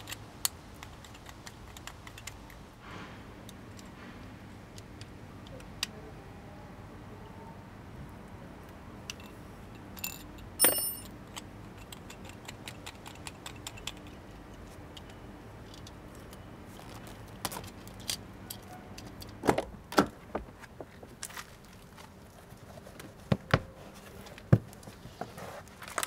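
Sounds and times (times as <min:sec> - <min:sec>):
metallic clinks and knocks: 0:10.0 - 0:11.1
ringing metal strike: 0:10.6 - 0:11.1.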